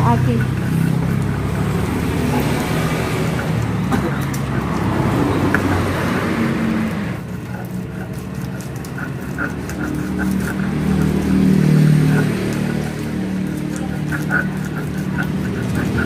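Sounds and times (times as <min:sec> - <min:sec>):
indistinct voices: 0:00.0 - 0:16.0
motor vehicles passing: 0:00.0 - 0:16.0.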